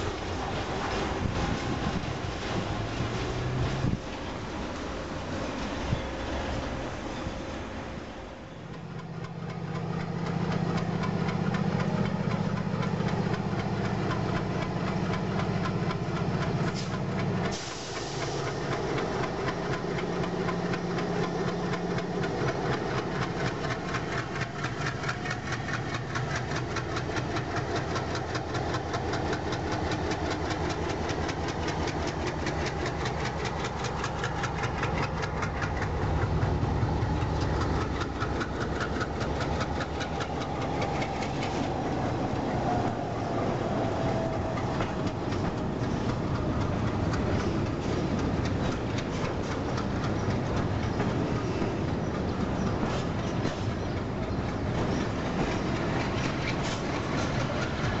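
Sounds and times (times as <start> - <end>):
diesel locomotive engine: 0.0 - 58.0
train wheels clattering: 8.6 - 58.0
brief air hiss: 16.7 - 18.6.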